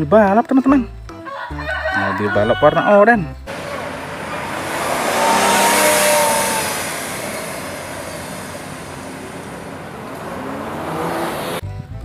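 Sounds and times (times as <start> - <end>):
car engine pulling away: 3.5 - 11.6
engine revving up: 3.5 - 11.6.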